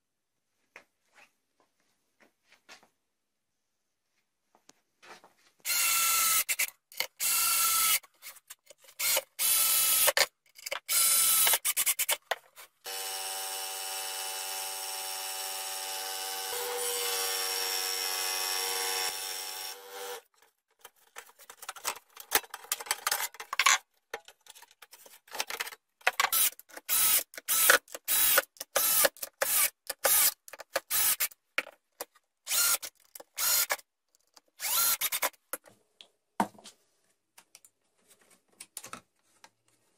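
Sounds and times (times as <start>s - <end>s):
cordless drill driving screws: 5.7s - 8.0s, 9.0s - 10.3s, 10.9s - 12.2s, 26.3s - 31.3s, 32.5s - 33.8s, 34.6s - 35.4s
scroll saw running: 26.4s - 31.3s, 32.5s - 33.8s, 34.6s - 35.3s.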